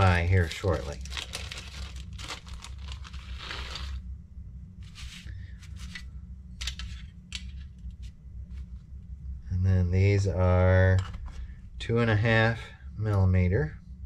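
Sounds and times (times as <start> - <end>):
plastic bag crinkling: 0.0 - 4.0
steady low hum: 0.0 - 14.0.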